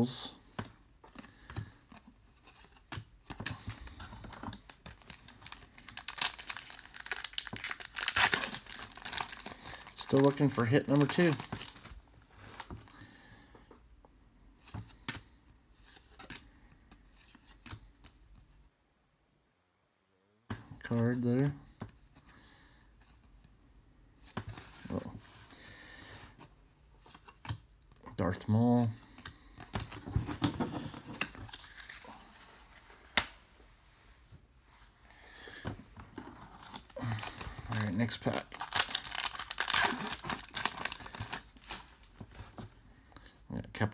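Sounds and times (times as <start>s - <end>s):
card rustling: 1.1s - 12.9s, 29.1s - 33.5s.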